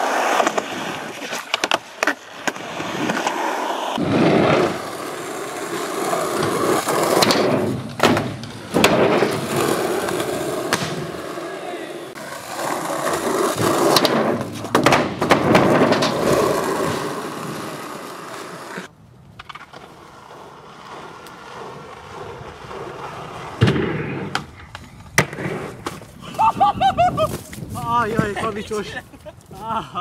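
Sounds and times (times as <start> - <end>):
skateboard wheels rolling: 0.0 - 29.6
skateboard clacking and slapping: 4.2 - 11.5, 12.1 - 26.0.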